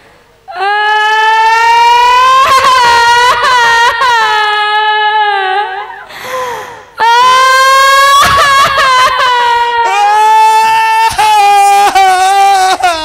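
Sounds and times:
woman wailing into microphone: 0.5s - 6.1s, 7.0s - 13.0s
breathy hiss: 6.1s - 7.0s.

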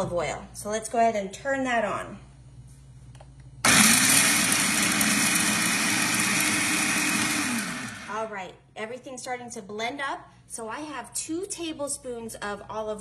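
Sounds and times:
food processor switch: 3.6s - 8.1s
food processor running: 3.6s - 8.3s.

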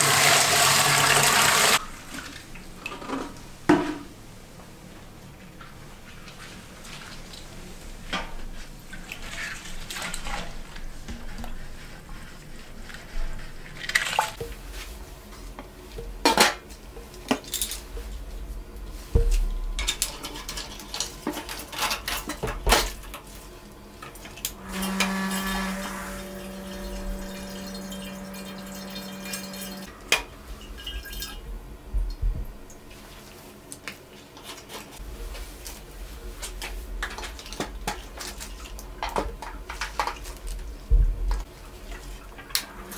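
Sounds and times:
pump humming: 24.6s - 29.9s.

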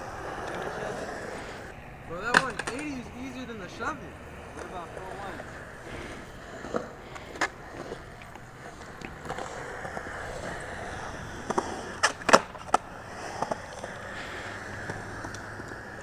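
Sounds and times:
skateboard wheels rolling on concrete: 0.0s - 16.0s
skateboard clacks and knocks: 2.2s - 2.9s, 4.5s - 16.0s.

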